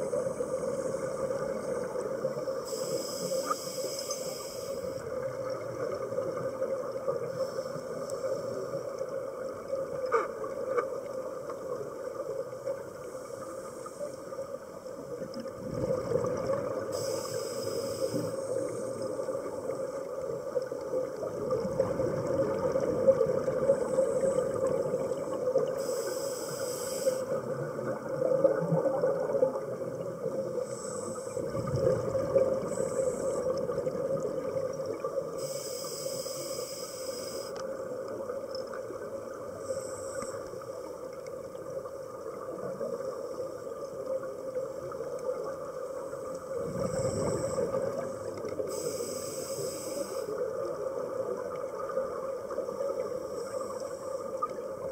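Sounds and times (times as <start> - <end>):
crackling underwater noise: 0.0 - 54.9
exhaled air bubbling: 15.2 - 17.4, 18.2 - 26.0, 27.1 - 35.5, 44.6 - 54.9.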